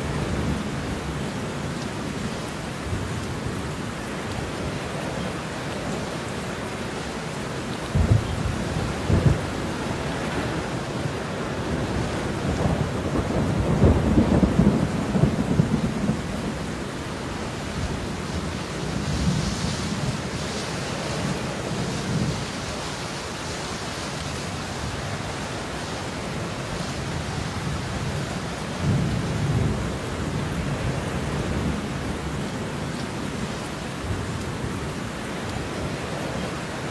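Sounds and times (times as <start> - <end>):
heavy rain: 0.0 - 36.9
rolling thunder: 7.9 - 16.8.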